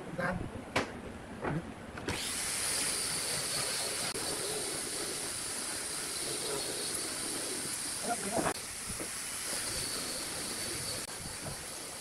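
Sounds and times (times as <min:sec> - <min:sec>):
steady hiss: 0:02.2 - 0:12.0.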